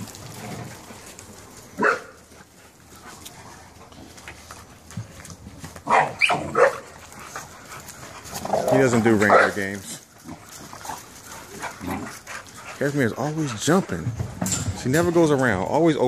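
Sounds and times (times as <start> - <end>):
dogs barking: 1.8 - 2.2, 5.8 - 9.7.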